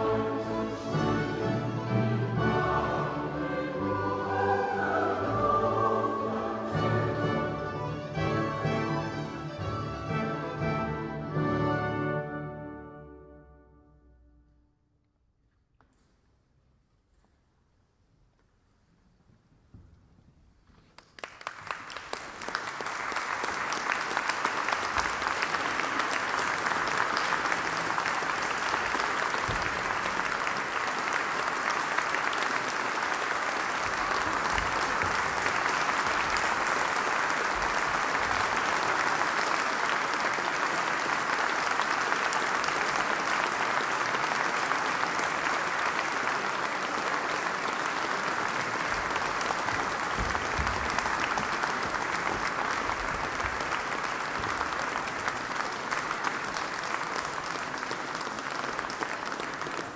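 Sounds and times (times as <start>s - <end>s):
audience applauding: 20.9s - 59.9s.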